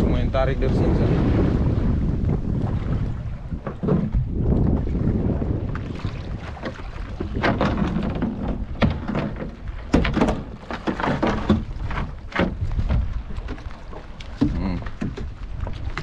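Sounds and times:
water splashes: 0.0 - 16.0
wind rumbling on microphone: 0.0 - 16.0
knocks on wooden boat: 3.5 - 4.6, 6.4 - 13.5, 14.4 - 16.0.

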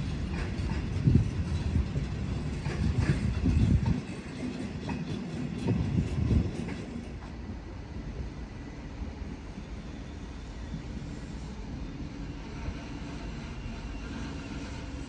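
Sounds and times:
train wheels knocking: 0.0 - 7.2
freight train rumbling past: 0.0 - 15.0.

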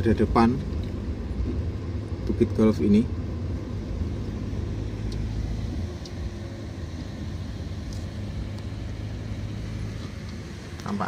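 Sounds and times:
car engine hum: 0.0 - 11.0
road and tyre noise: 0.0 - 11.0.

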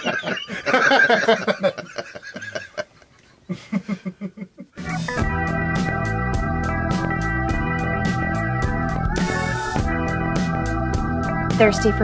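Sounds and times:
people laughing: 0.0 - 4.8
guitar music: 4.8 - 12.0.

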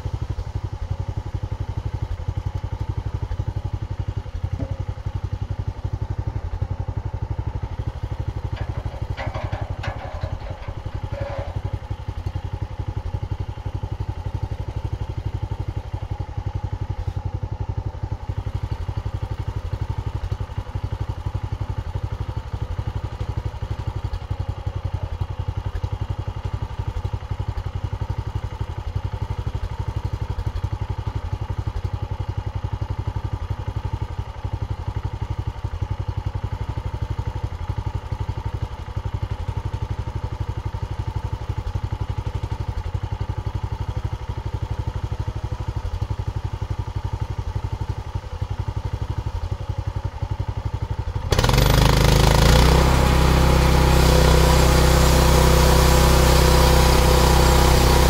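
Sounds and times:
gasoline engine idling: 3.7 - 18.6
brief metal clanks: 8.5 - 12.0.

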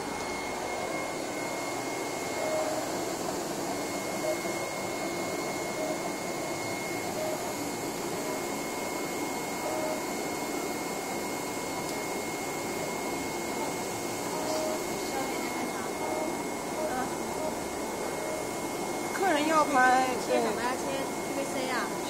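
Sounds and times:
thin steady motor whine: 0.0 - 22.0
vacuum blower airy noise: 0.0 - 22.0.

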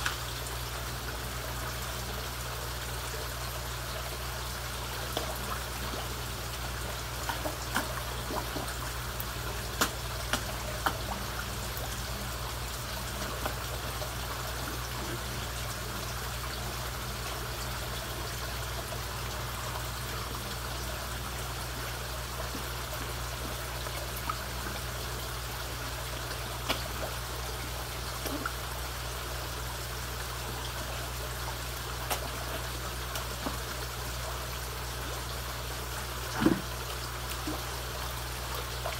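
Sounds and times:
low steady hum: 0.0 - 38.9
water trickling: 0.0 - 38.9.

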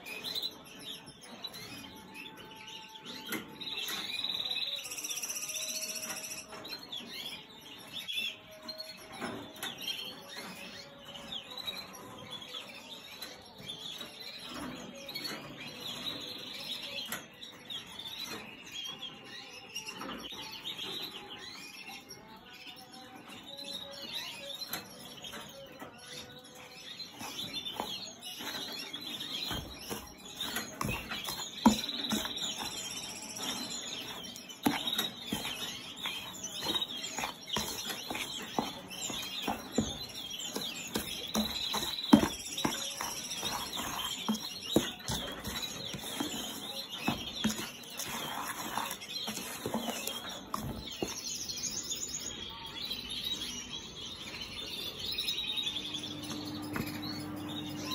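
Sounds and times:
small birds chirping and trilling: 0.0 - 57.9
stirring in plastic tub: 9.2 - 13.0, 23.4 - 53.4, 55.8 - 57.9.

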